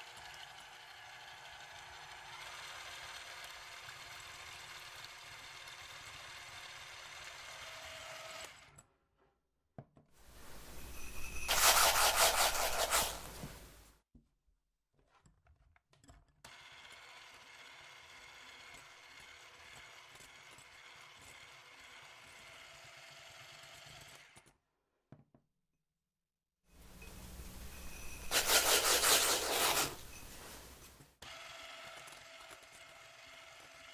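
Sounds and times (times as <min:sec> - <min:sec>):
sugar pouring into glass bowl: 0:10.4 - 0:13.3, 0:27.5 - 0:30.7.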